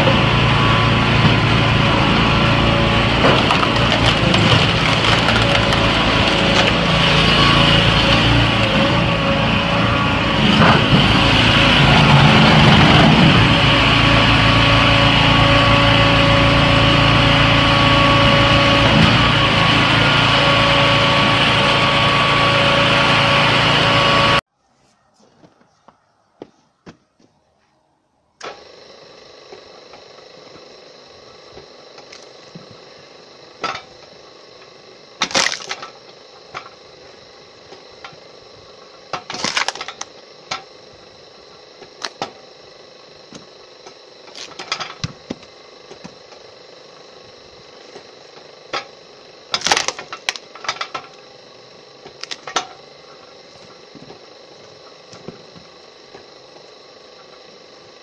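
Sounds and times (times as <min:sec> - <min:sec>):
machine humming: 0:00.0 - 0:24.4
logs cracking and splitting: 0:02.5 - 0:09.0, 0:35.2 - 0:35.9, 0:39.2 - 0:40.2, 0:49.5 - 0:50.6, 0:52.1 - 0:52.6.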